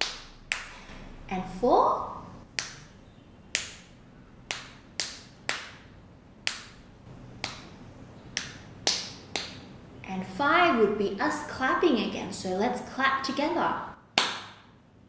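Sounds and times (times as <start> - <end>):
fingers clapping on palm: 2.6 - 2.9, 3.6 - 5.8, 6.4 - 6.8, 7.4 - 7.7, 8.3 - 9.6, 14.2 - 14.6.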